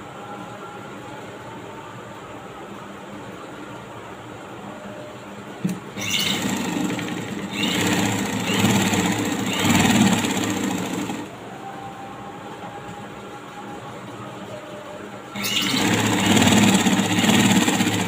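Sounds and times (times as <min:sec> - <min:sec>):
sewing machine running: 0:05.7 - 0:11.4, 0:15.4 - 0:18.0.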